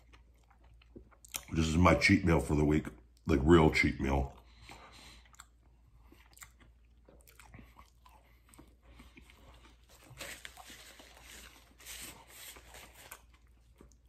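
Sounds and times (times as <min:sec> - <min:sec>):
man chewing food: 0:00.0 - 0:01.8, 0:04.2 - 0:14.0
paper napkin rustling: 0:10.1 - 0:13.3.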